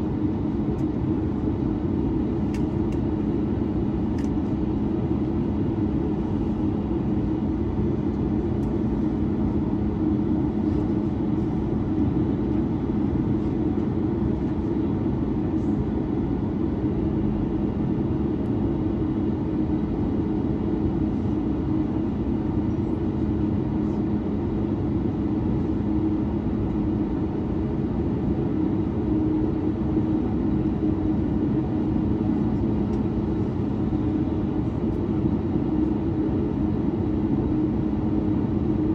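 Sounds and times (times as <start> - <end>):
airplane cabin engine drone: 0.0 - 38.9.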